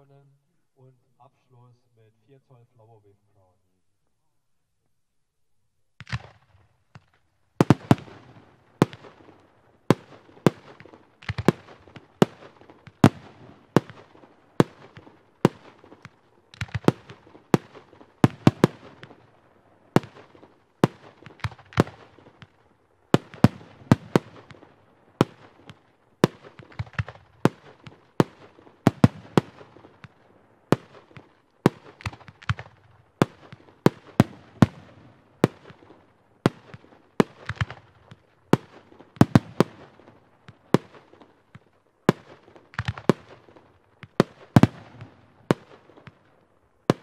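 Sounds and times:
firework reports: 7.6s - 41.3s.

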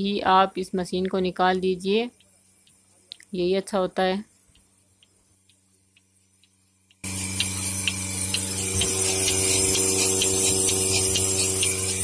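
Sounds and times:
pulsator clicking: 1.0s - 3.4s, 4.3s - 12.0s
vacuum pump humming: 4.3s - 12.0s.

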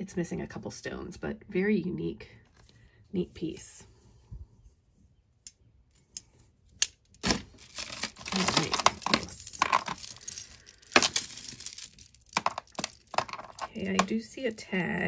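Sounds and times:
jewelry clinking and jangling: 7.6s - 14.6s.

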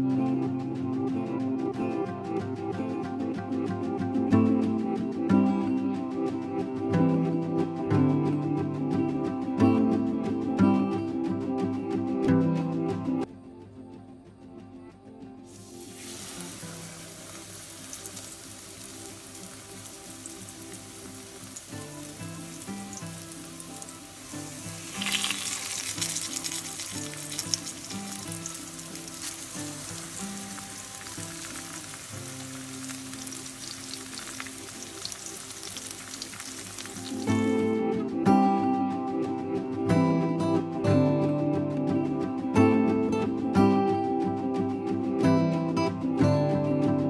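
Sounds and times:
soft music: 0.0s - 47.0s
chicken sizzling in hot oil: 15.5s - 37.9s.

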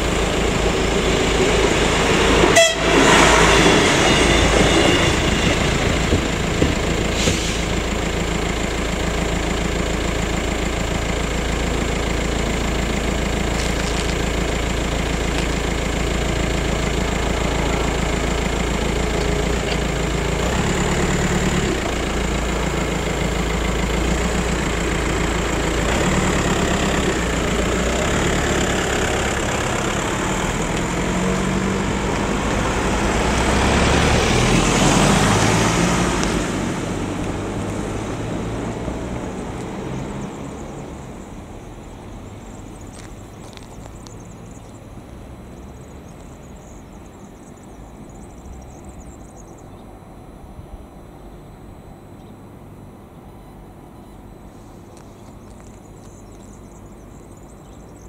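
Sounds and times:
car engines idling: 0.0s - 58.0s
car accelerating past: 16.0s - 41.2s.

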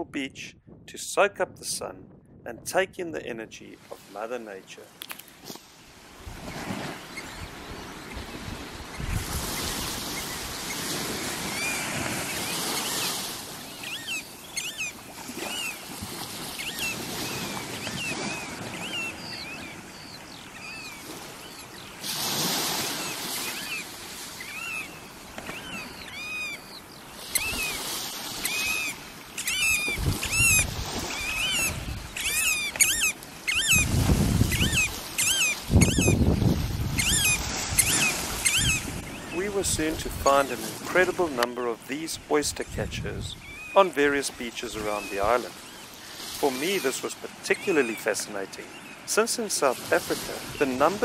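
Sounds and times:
small waves washing on beach: 3.6s - 51.0s
oystercatchers piping: 6.5s - 22.1s, 22.7s - 39.4s, 43.2s - 43.9s, 44.6s - 51.0s.

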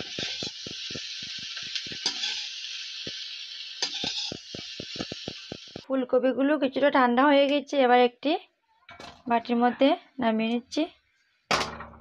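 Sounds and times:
vegetables sizzling in oil: 0.0s - 5.9s.

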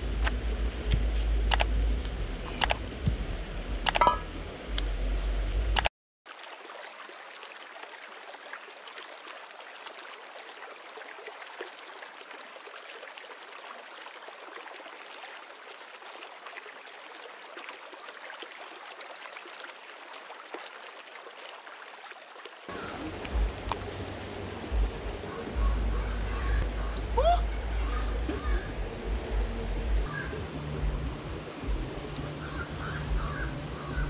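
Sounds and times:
deep rumble: 0.0s - 5.8s, 22.7s - 34.0s
river water rushing: 6.3s - 29.0s, 29.6s - 34.0s.

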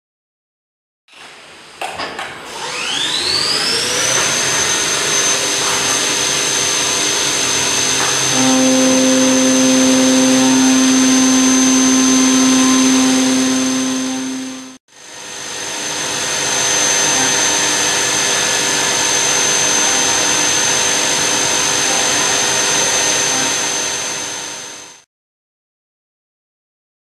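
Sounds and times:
end mill cutting hum: 3.2s - 14.8s
spindle whine: 7.5s - 14.8s.

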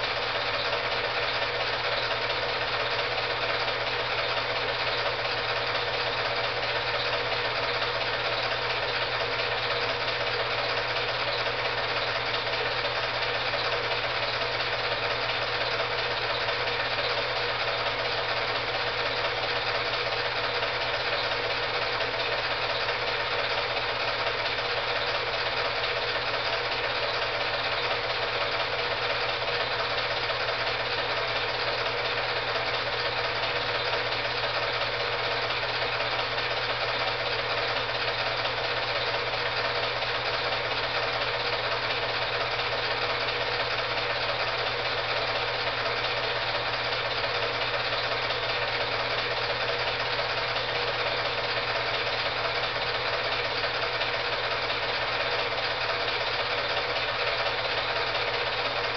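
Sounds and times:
film projector whirring: 0.0s - 58.9s.

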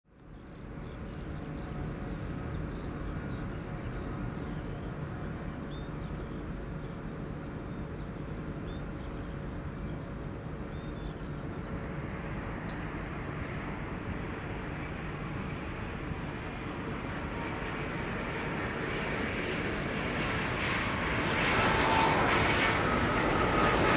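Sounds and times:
jet engines rumbling: 0.2s - 23.9s
approaching aircraft rushing: 10.0s - 23.9s.

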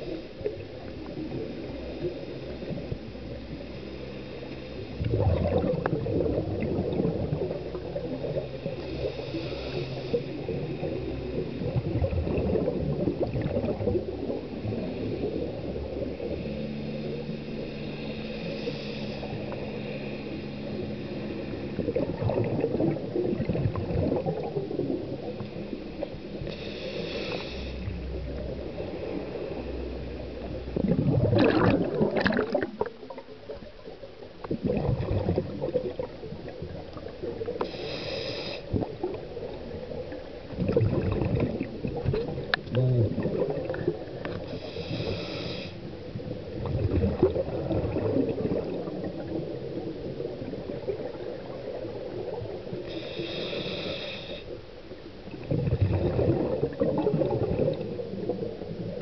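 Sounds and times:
exhaled air bubbling underwater: 0.0s - 59.0s
scuba regulator inhale hiss: 8.9s - 10.6s, 17.0s - 21.4s, 26.4s - 27.9s, 37.6s - 38.9s, 44.4s - 45.9s, 52.8s - 54.7s.

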